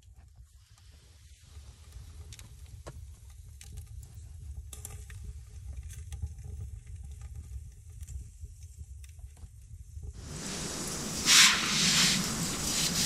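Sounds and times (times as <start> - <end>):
low steady rumble: 10.2 - 13.0
wood stove fire crackling: 10.2 - 13.0.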